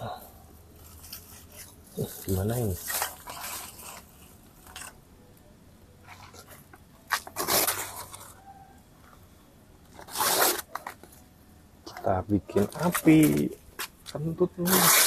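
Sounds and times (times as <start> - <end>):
paper and coconut shells crunching: 0.9 - 5.0, 6.0 - 8.5, 11.9 - 15.0.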